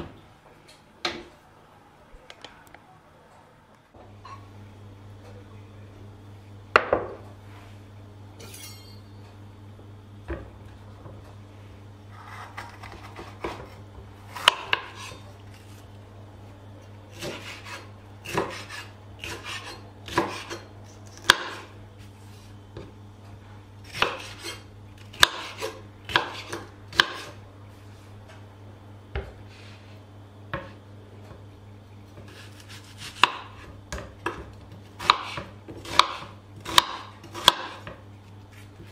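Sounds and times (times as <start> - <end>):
low steady hum: 0.0 - 38.9
knife cutting vegetables: 12.1 - 15.8, 17.1 - 21.7, 23.8 - 27.4, 32.2 - 34.4.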